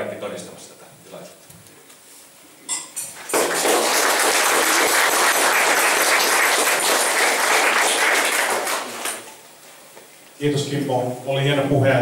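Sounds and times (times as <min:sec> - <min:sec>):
audience applause: 0:03.3 - 0:09.3.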